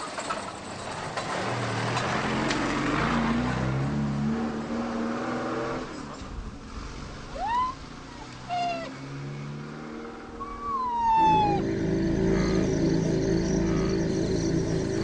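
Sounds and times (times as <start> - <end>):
rhinos squealing calls: 7.4 - 7.8, 8.5 - 8.9, 10.4 - 11.7
background music: 11.1 - 15.0.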